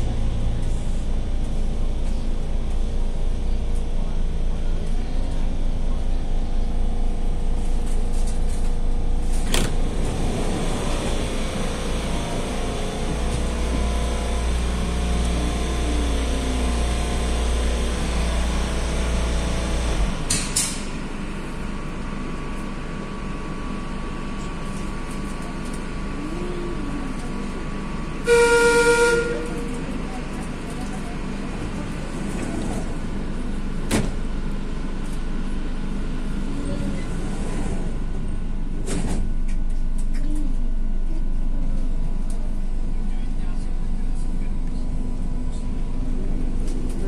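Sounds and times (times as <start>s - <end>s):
train motor whine: 9.5s - 20.3s, 26.2s - 30.0s
train whistle blast: 28.2s - 29.6s.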